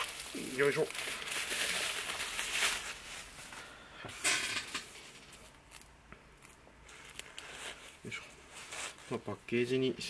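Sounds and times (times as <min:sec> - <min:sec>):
plastic packaging crinkling: 0:00.0 - 0:03.6.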